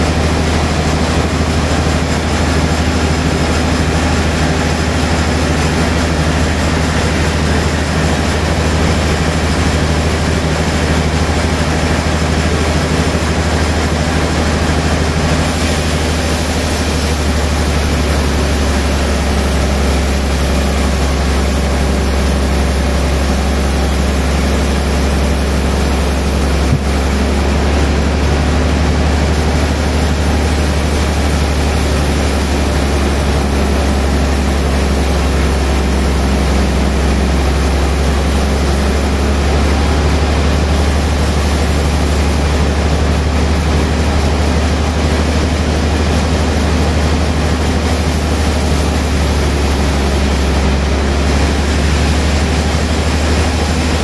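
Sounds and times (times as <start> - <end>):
low motor hum: 0.0 - 54.0
band saw cutting wood: 14.2 - 43.0, 47.0 - 54.0.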